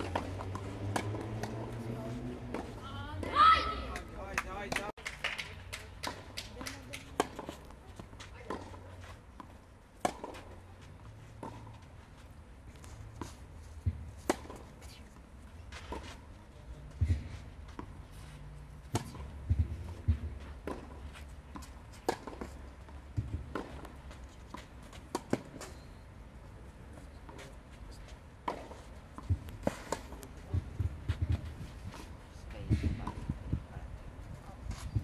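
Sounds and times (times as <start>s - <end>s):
tennis racket hitting ball: 0.0s - 1.9s
tennis ball bouncing: 0.0s - 4.9s, 6.0s - 10.6s, 18.8s - 25.7s, 28.4s - 32.1s.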